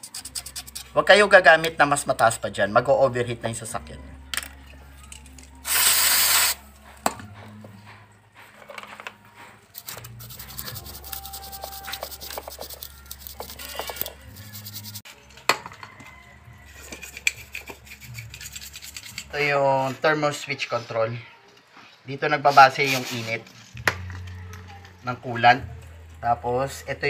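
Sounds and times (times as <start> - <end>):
hands scrubbing metal part: 9.8 - 15.0, 16.8 - 19.3.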